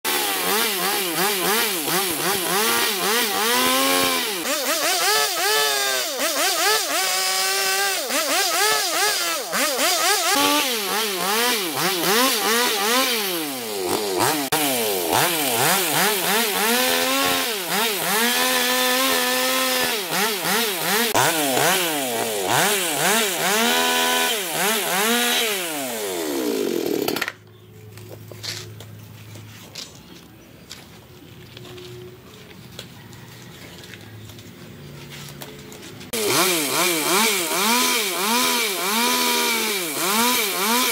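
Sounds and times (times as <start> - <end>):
chainsaw cutting wood: 0.1 - 27.4, 36.1 - 40.9.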